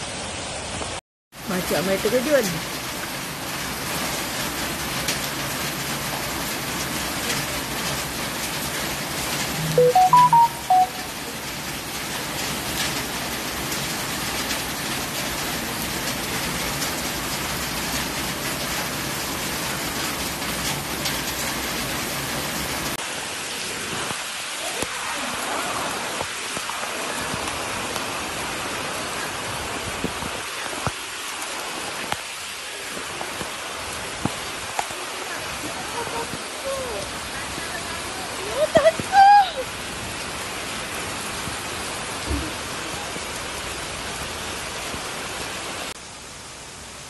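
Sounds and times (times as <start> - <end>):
heavy rain falling: 0.0 - 47.0
faint voices: 34.3 - 39.7.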